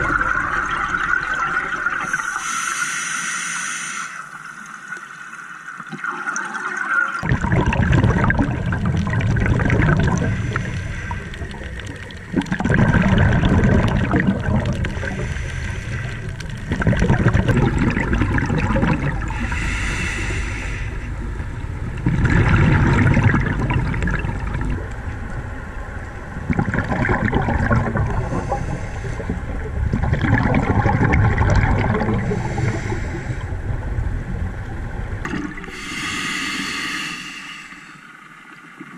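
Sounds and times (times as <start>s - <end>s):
underwater bubbles rushing: 0.0s - 2.5s, 4.4s - 36.1s.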